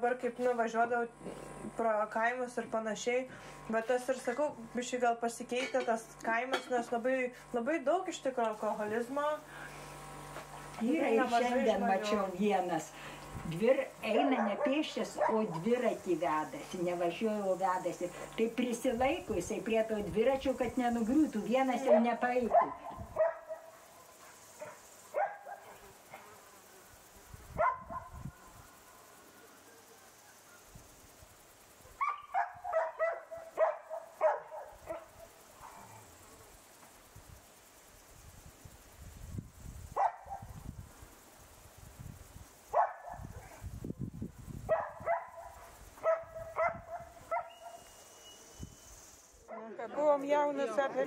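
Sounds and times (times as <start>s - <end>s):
dog barking: 14.3s - 15.5s, 21.8s - 23.8s, 24.6s - 26.4s, 27.6s - 28.2s, 32.0s - 35.4s, 40.0s - 40.5s, 42.7s - 43.6s, 44.7s - 47.8s.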